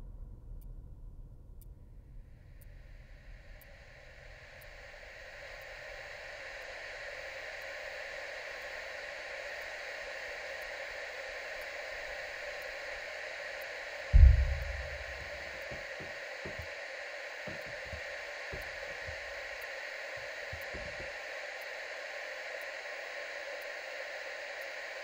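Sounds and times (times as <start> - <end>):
steady hiss: 2.5 - 25.0
deep boom: 14.2 - 15.9.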